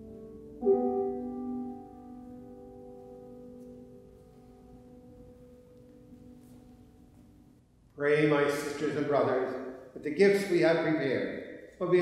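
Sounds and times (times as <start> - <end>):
piano chord ringing: 0.0 - 7.6.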